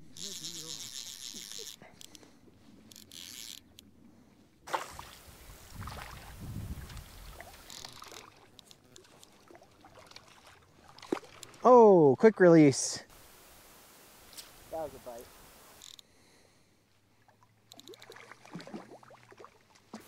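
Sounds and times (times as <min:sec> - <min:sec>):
water sloshing and lapping: 0:04.6 - 0:11.8, 0:17.0 - 0:20.0.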